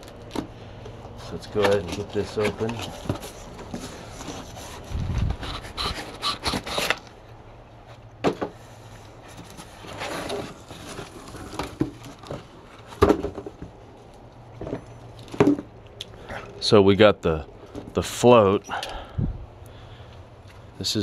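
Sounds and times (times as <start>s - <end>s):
cardboard scraping and rustling: 1.1s - 7.2s, 8.8s - 13.8s.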